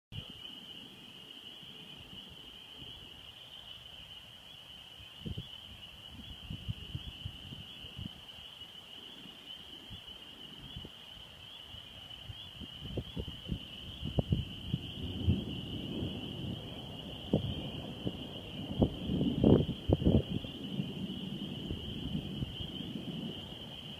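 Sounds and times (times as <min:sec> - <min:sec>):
wind buffeting microphone: 0:05.2 - 0:08.3, 0:12.2 - 0:23.9.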